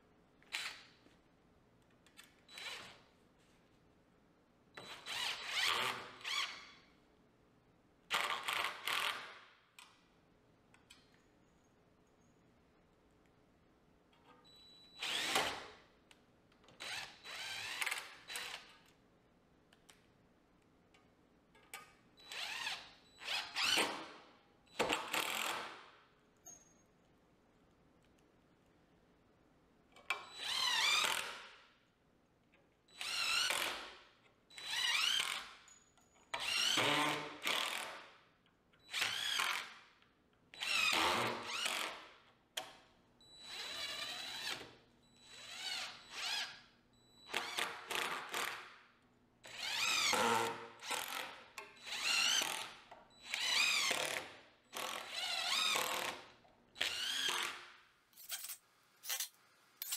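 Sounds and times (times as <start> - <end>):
power drill driving screws: 15.0 - 15.7, 22.3 - 23.9, 30.3 - 31.4, 32.9 - 33.9, 36.4 - 38.0, 38.9 - 39.7, 40.6 - 42.0, 43.4 - 46.5, 49.5 - 56.2, 56.8 - 57.6.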